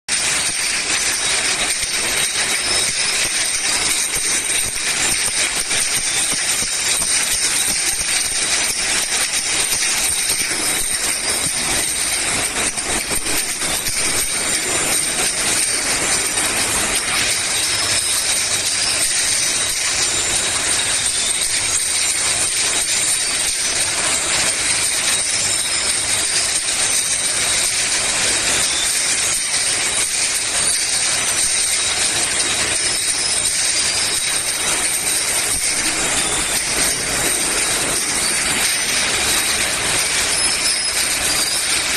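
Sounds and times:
mechanical clatter of bottling line: 0.1 - 41.9
glass bottles clinking: 0.2 - 20.2, 27.2 - 41.9
steady high whine: 34.4 - 41.9.

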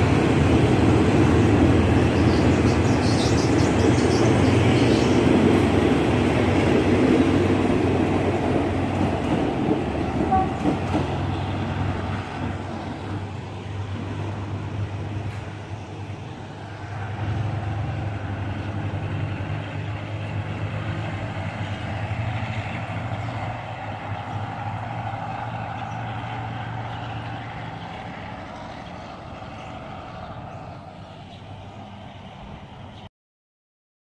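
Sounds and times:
diesel train engine humming: 0.0 - 33.1.

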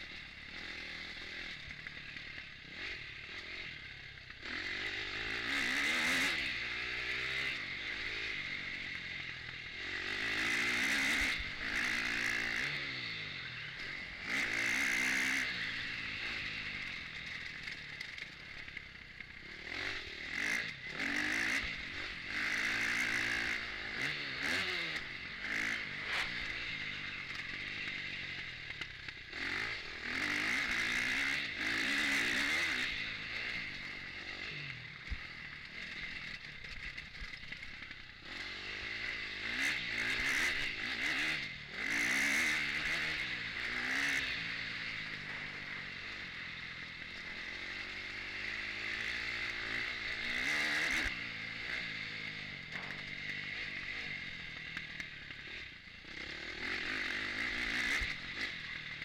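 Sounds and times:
motorbike engine revving: 0.0 - 59.0.

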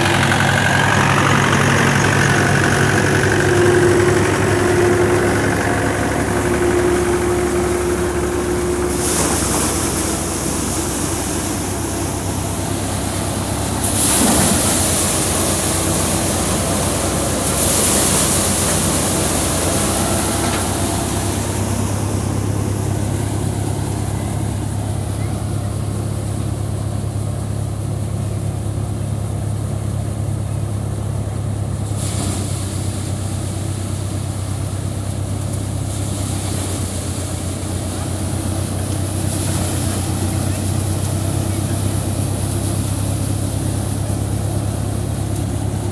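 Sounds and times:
tractor engine running: 0.0 - 45.9.

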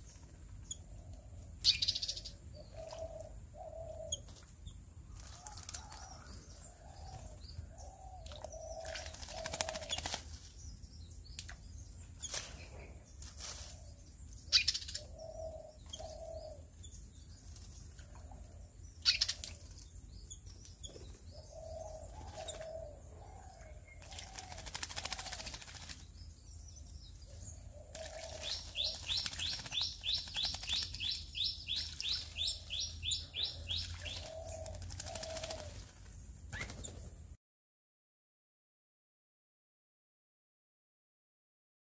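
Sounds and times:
dove cooing: 2.3 - 4.2, 5.4 - 10.1, 14.6 - 16.7, 21.3 - 25.6, 27.6 - 36.0
bird splashing in birdbath: 24.0 - 26.1, 27.9 - 31.2, 31.8 - 32.6, 33.8 - 35.9.

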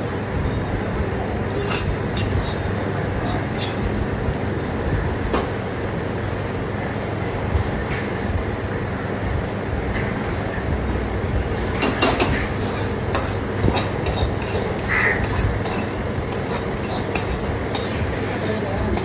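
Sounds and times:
ladle scraping metal pan: 1.5 - 4.0, 12.1 - 19.0.

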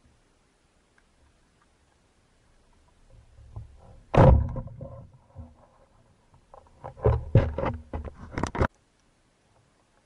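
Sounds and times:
knocks and clatters of handling: 3.4 - 8.8.

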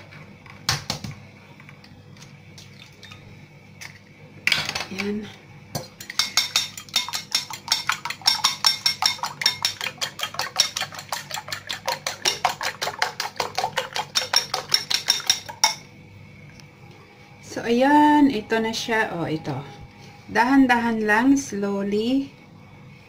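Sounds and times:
fork beating eggs in a bowl: 6.0 - 15.8.

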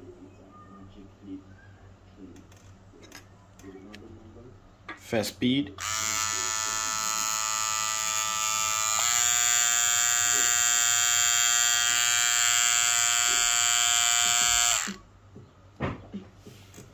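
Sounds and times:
hair trimmer buzzing: 5.8 - 15.0.

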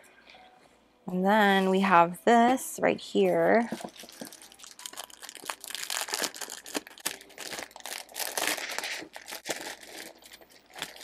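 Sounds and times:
plastic sleeve crinkling: 3.5 - 11.0.

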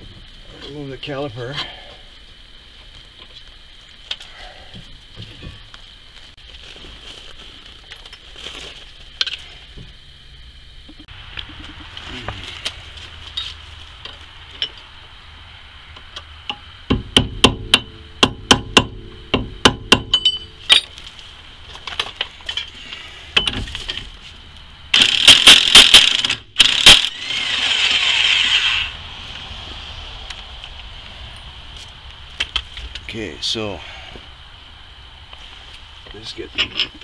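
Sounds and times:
steady whirring: 24.9 - 31.4.

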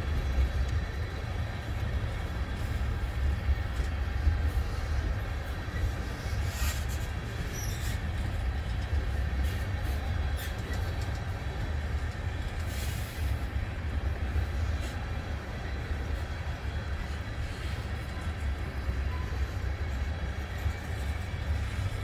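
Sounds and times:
train clanks: 0.0 - 22.0
train wheels rumbling on rail: 0.0 - 22.0
wheel squeals: 6.3 - 8.2.

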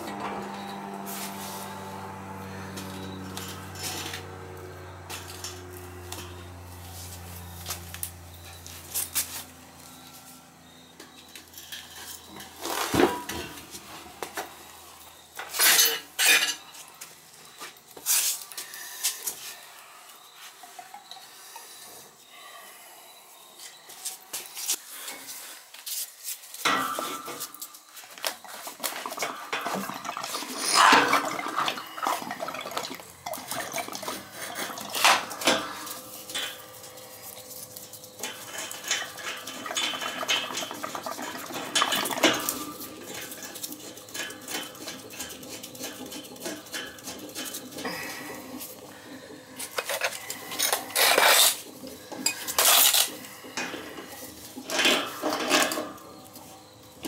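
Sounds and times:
metal tools clinking: 11.1 - 13.8, 15.1 - 17.0, 32.8 - 48.8, 49.6 - 56.8.

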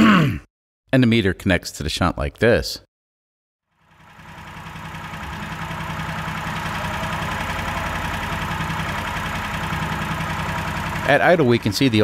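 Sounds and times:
small engine idling: 3.7 - 12.0.

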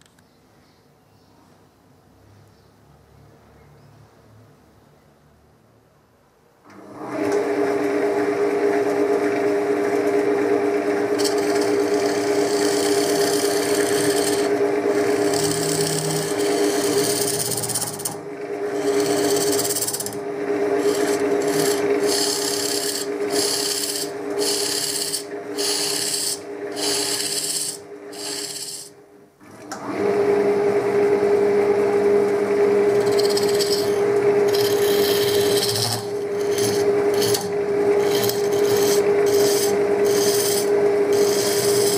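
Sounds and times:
wood lathe humming: 7.1 - 29.0, 29.8 - 41.9
turning tool cutting wood: 8.6 - 29.0, 32.0 - 41.9.

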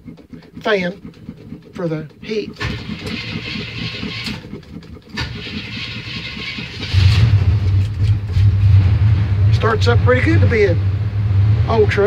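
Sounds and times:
starter cranking engine: 0.0 - 8.8
car engine idling: 0.0 - 12.0.

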